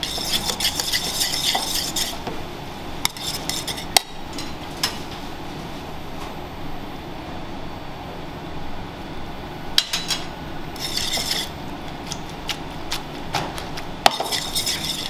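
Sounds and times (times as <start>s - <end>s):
pan scraping on hob: 0.0s - 2.2s, 3.1s - 4.5s, 10.8s - 11.6s, 14.1s - 15.0s
steady low hum: 0.0s - 15.0s.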